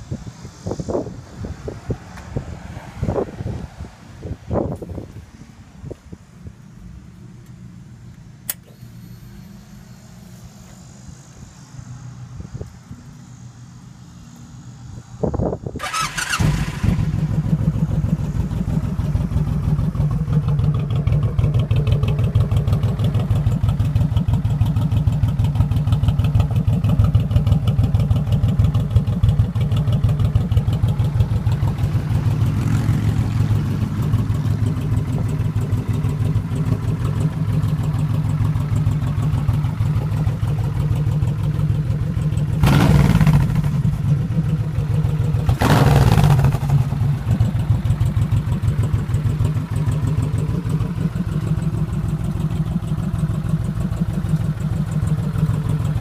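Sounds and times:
motorcycle engine idling: 0:15.8 - 0:56.0.

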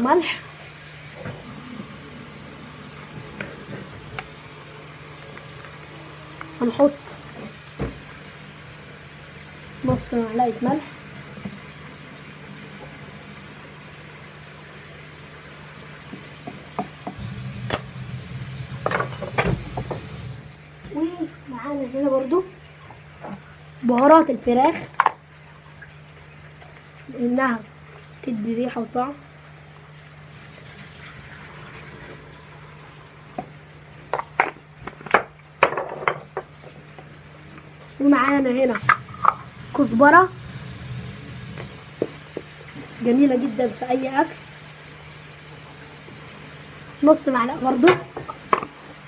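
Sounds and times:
spoon clinking on stone countertop: 0:17.7 - 0:18.0.

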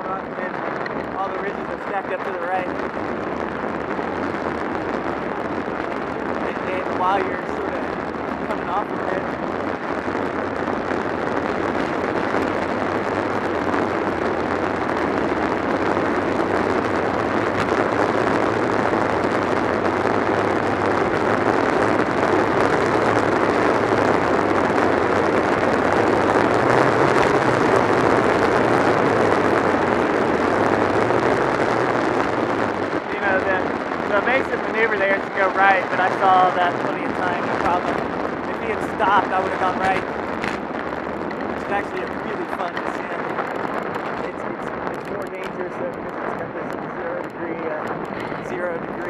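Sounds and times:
wind rushing over microphone: 0:00.0 - 0:49.0.

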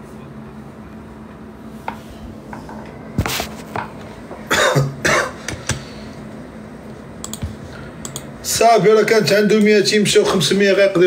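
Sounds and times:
man coughing: 0:04.4 - 0:05.5.

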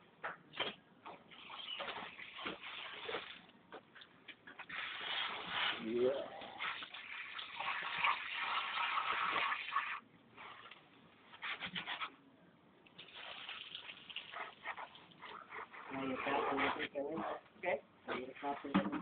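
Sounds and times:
water gushing into bucket: 0:01.3 - 0:03.5, 0:04.6 - 0:10.1, 0:13.0 - 0:15.2.

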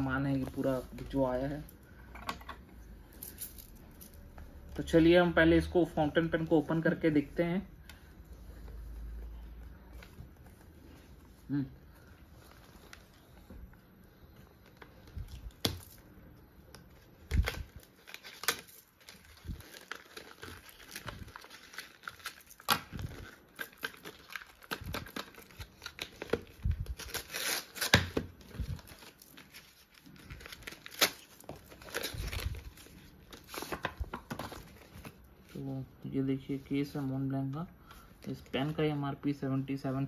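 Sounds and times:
wrapping paper tearing and crumpling: 0:16.9 - 0:35.8.

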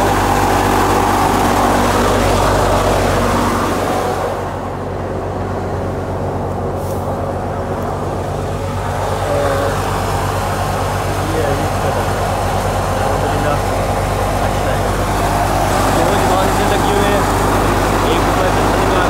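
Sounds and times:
straw and grain rushing through machine: 0:00.0 - 0:05.2, 0:06.2 - 0:19.0
thresher engine drone: 0:00.0 - 0:19.0.

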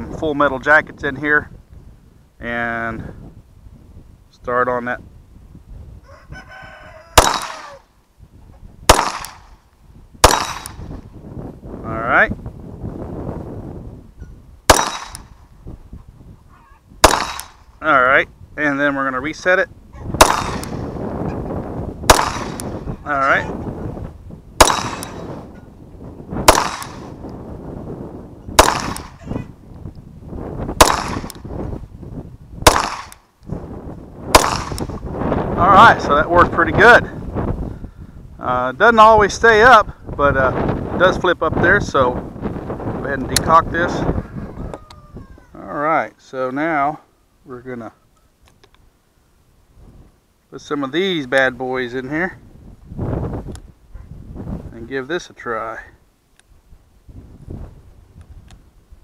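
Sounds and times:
rooster crowing: 0:06.0 - 0:07.9, 0:44.1 - 0:45.6
pistol shots with echo: 0:07.2 - 0:07.8, 0:08.9 - 0:09.6, 0:10.2 - 0:10.9, 0:14.7 - 0:15.4, 0:17.0 - 0:17.6, 0:20.2 - 0:20.9, 0:22.1 - 0:22.8, 0:24.6 - 0:25.4, 0:26.4 - 0:27.2, 0:28.6 - 0:29.2, 0:30.8 - 0:31.4, 0:32.6 - 0:33.2, 0:34.3 - 0:35.0.

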